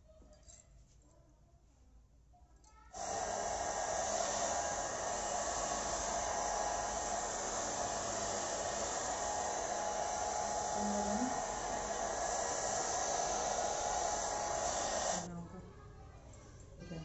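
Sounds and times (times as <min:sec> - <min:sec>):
hair dryer running: 0:03.0 - 0:15.3.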